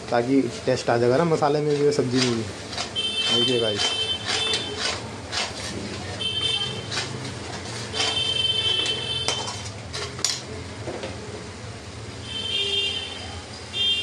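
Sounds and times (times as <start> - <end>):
metal spoon scraping a steel pan: 1.4 - 10.4.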